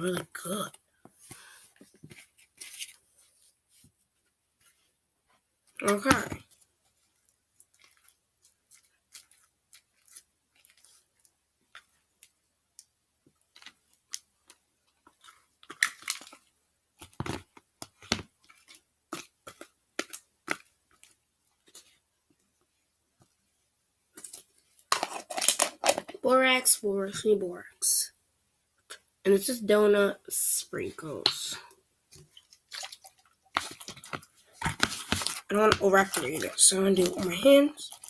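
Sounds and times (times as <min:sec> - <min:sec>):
small clicks and crackles: 0:05.7 - 0:22.4
slime scraped and squished: 0:05.8 - 0:12.0, 0:17.0 - 0:22.0, 0:32.2 - 0:38.0.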